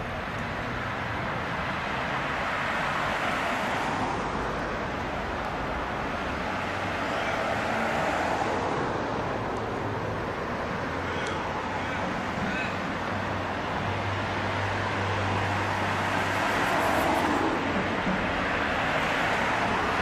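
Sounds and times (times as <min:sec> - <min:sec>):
road traffic: 0:00.0 - 0:20.0
tram wheels and motor rumbling: 0:04.4 - 0:20.0.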